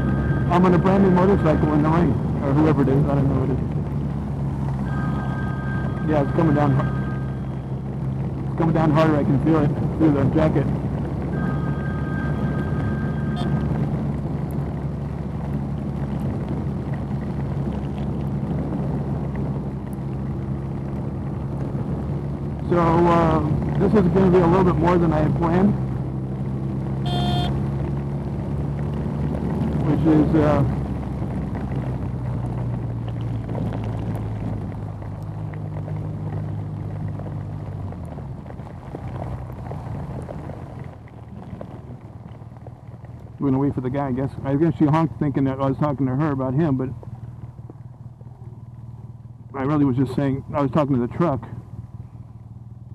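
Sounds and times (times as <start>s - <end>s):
rain: 0.0s - 50.8s
motorcycle engine droning: 0.0s - 52.9s
rain hitting a helmet: 30.6s - 43.5s.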